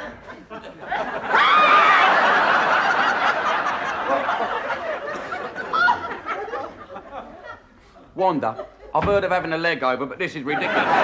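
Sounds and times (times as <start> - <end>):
audience laughing: 0.0 - 7.8, 10.5 - 11.0.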